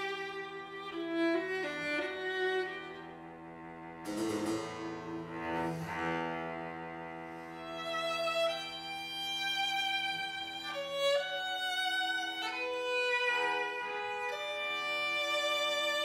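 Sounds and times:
string quartet sustained chords: 0:00.0 - 0:16.0.

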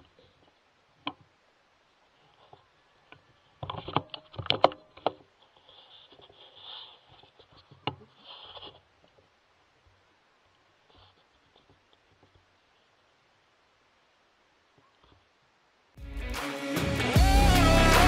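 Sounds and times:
faint rustling: 0:01.9 - 0:13.2.

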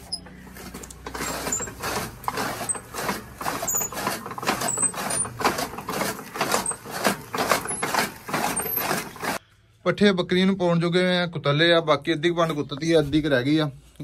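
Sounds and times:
chaff cutter chopping fodder: 0:00.0 - 0:09.4.

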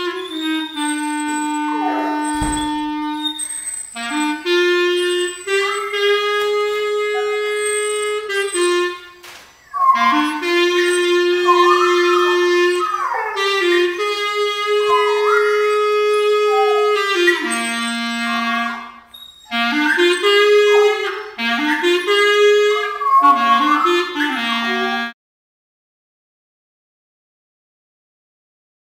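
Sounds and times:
dog howling along: 0:00.0 - 0:09.0, 0:09.6 - 0:18.9, 0:19.5 - 0:25.1
clarinet playing held notes: 0:00.0 - 0:25.2.

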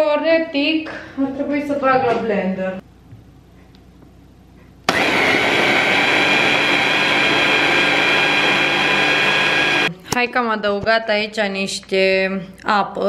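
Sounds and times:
electric blender running: 0:04.9 - 0:09.9.

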